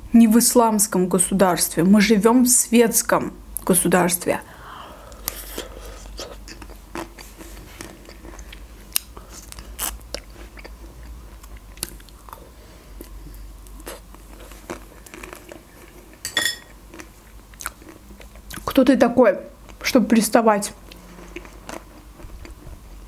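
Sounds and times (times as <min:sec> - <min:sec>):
wet chewing: 0:05.1 - 0:16.2.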